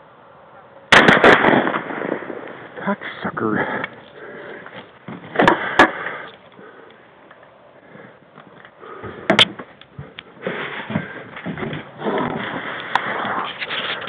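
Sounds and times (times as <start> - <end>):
rustling through brush: 7.9 - 14.0.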